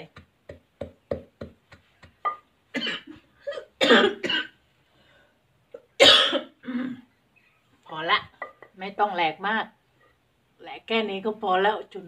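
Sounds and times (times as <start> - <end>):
pestle pounding in mortar: 0.0 - 2.5
person coughing: 2.8 - 4.6, 5.8 - 7.1.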